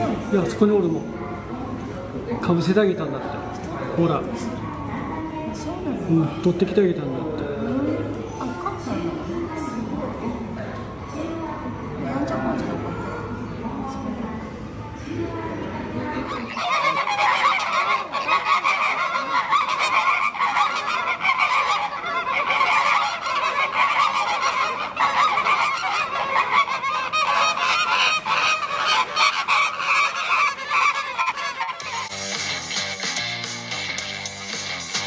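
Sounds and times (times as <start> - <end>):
flamingos honking: 16.1 - 33.0
music: 31.8 - 35.0.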